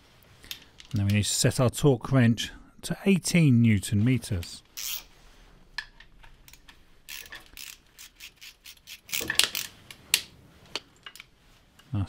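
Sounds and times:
sharp torque wrench clicks: 0:04.8 - 0:05.0, 0:07.1 - 0:09.7
torque wrench ratcheting: 0:04.8 - 0:05.1, 0:07.1 - 0:09.7.

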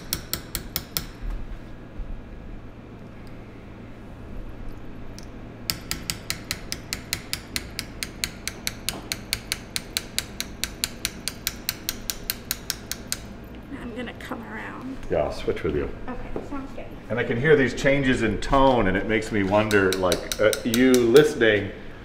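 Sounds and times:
small hammer tapping metal tool: 0:00.0 - 0:01.2, 0:05.2 - 0:13.3, 0:19.6 - 0:21.3.

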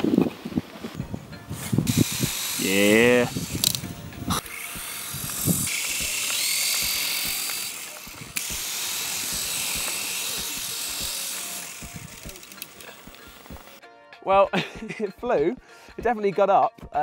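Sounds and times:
toy helicopter motor whirring: 0:01.6 - 0:13.8.

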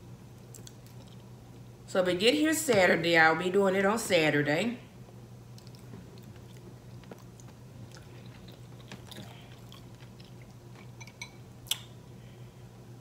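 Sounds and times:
chewing with wet mouth sounds: 0:00.4 - 0:01.3, 0:05.5 - 0:12.0.

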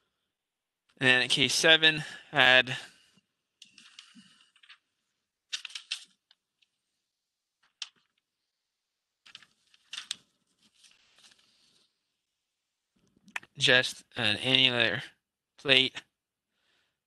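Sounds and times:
faint clicks and taps: 0:07.6 - 0:08.3.

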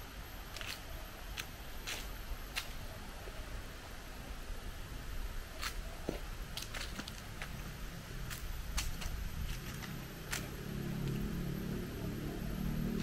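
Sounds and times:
low steady rumble: 0:00.0 - 0:13.0
footsteps crunching dry leaves: 0:05.5 - 0:12.0.

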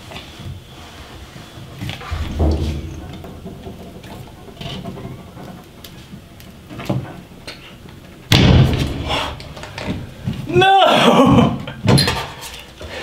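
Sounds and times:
loud knock: 0:02.0 - 0:04.4, 0:08.3 - 0:09.1.

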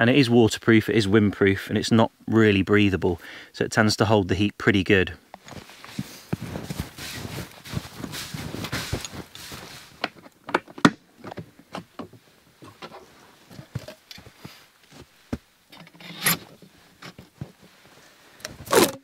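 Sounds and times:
footsteps crunching in snow: 0:05.4 - 0:10.2
rustling crunches: 0:05.4 - 0:15.5, 0:16.1 - 0:19.0.

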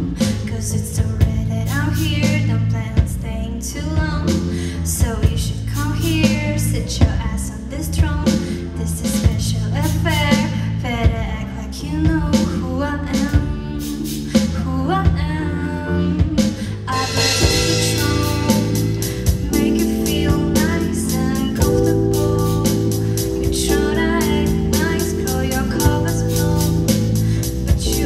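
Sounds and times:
girl singing lead: 0:00.0 - 0:28.0
live band playing: 0:12.0 - 0:28.0
steady drum beat: 0:13.2 - 0:15.3, 0:16.2 - 0:28.0.

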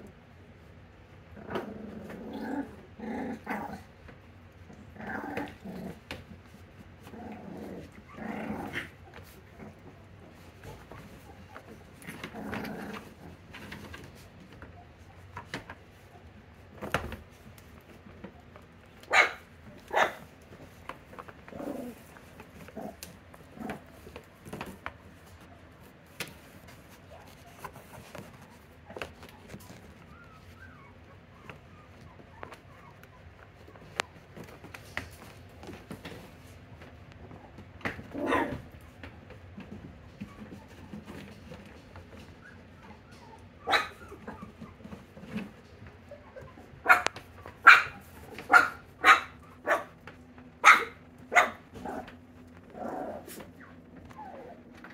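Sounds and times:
puppies yipping and barking: 0:42.2 - 0:45.2.

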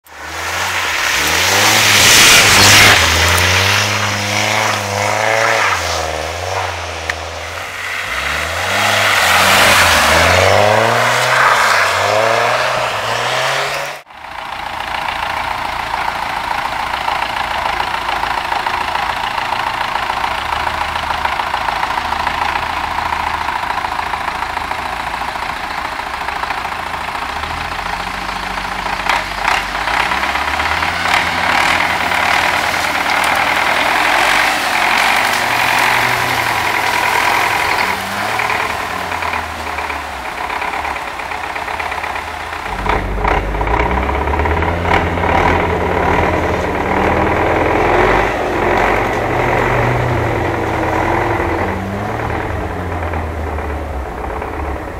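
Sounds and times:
car engine revving: 0:00.0 - 0:25.5, 0:26.3 - 0:54.9
tractor diesel engine running: 0:14.0 - 0:54.9.

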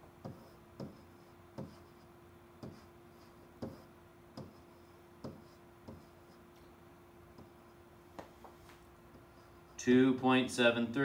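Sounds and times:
faint steady hum: 0:00.0 - 0:11.0
pen tapping on whiteboard: 0:00.2 - 0:01.0, 0:01.6 - 0:01.8, 0:02.6 - 0:02.8, 0:03.6 - 0:04.6, 0:05.2 - 0:06.1.

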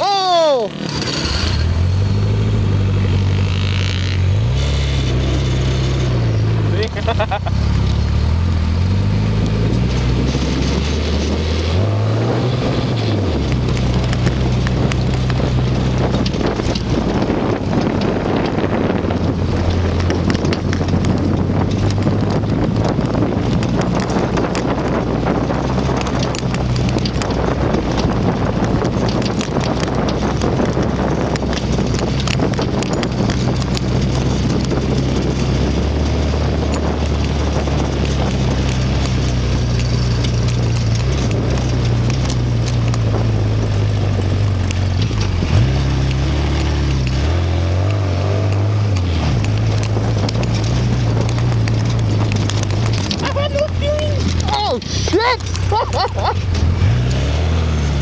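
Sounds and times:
off-road vehicle engine running: 0:00.0 - 0:58.0
wind buffeting microphone: 0:00.0 - 0:58.0
rattles and knocks: 0:12.6 - 0:47.3, 0:48.5 - 0:57.2.

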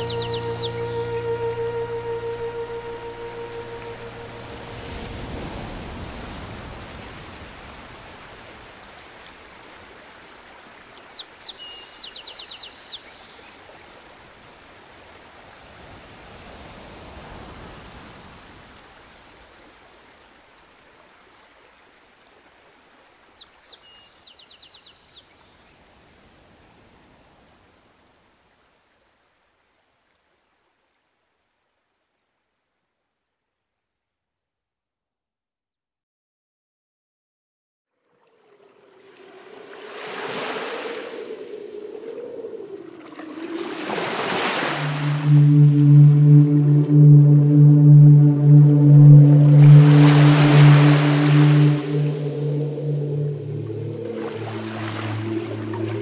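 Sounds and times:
bird trilling: 0:00.0 - 0:01.4
stream water running: 0:00.0 - 0:25.3, 0:38.0 - 0:45.4, 0:53.4 - 0:56.0.

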